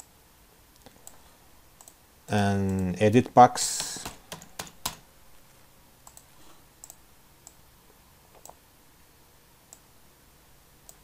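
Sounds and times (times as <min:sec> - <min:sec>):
computer mouse clicks: 0:01.8 - 0:02.0, 0:03.8 - 0:05.0, 0:06.0 - 0:07.6, 0:08.3 - 0:08.6.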